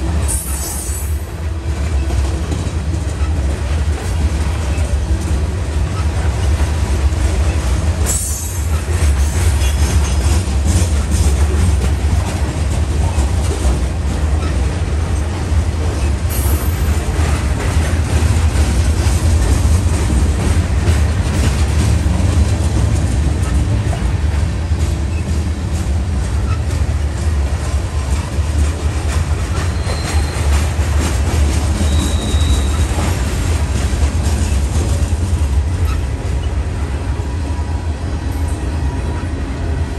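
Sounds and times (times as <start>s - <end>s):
wheels clicking over rail joints: 0.0s - 36.6s
freight train rumbling past: 0.0s - 39.9s
faint wheel squeal: 29.5s - 30.5s, 31.8s - 33.0s.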